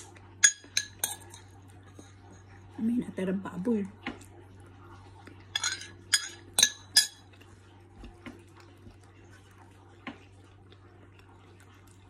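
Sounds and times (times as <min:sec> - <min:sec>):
metal spoon clinking on dish: 0:00.4 - 0:01.5, 0:05.5 - 0:07.2.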